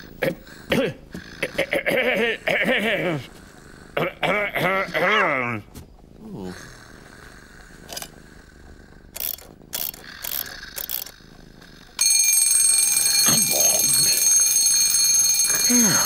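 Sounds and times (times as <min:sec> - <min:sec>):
alarm clock mechanical clicks: 0:09.2 - 0:11.2, 0:12.0 - 0:16.0
alarm clock bell ringing: 0:12.0 - 0:16.0.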